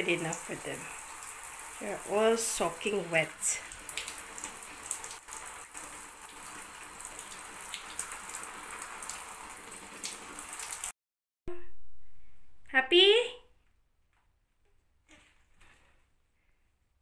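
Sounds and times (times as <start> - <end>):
shower water spraying: 0.0 - 10.9.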